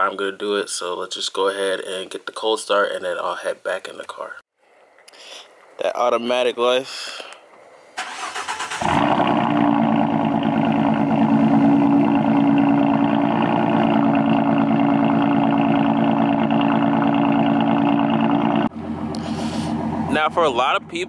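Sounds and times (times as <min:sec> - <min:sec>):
car engine idling: 0:08.1 - 0:21.0.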